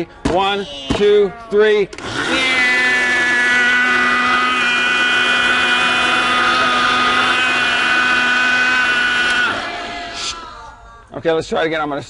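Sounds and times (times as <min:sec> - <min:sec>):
blender motor whining: 0:01.9 - 0:10.5.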